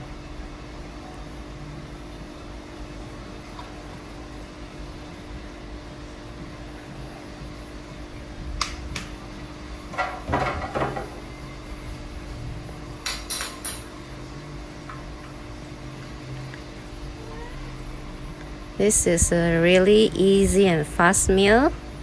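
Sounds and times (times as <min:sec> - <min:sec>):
low background hum: 0:00.0 - 0:22.0
spoon and bottles clinking on glass: 0:13.0 - 0:13.9.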